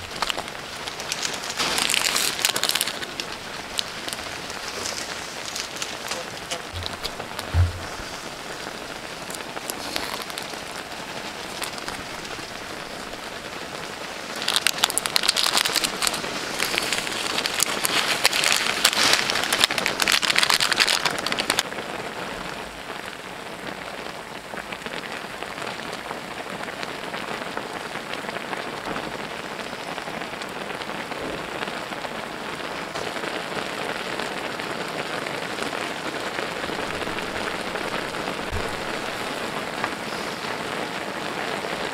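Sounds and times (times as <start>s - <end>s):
noodles sizzling in a pan: 0.0s - 21.7s.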